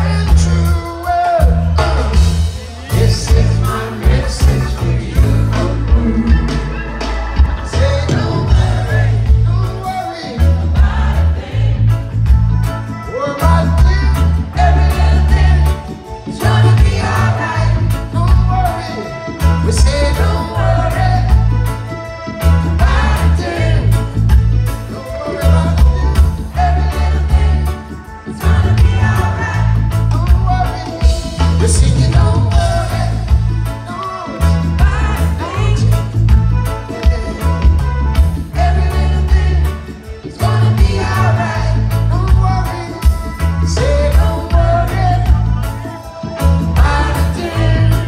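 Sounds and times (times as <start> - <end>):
person singing: 0.0 - 10.6
live reggae band playing: 0.0 - 48.0
people singing: 0.0 - 48.0
drum beat: 1.4 - 11.7
heavy bass line: 1.4 - 48.0.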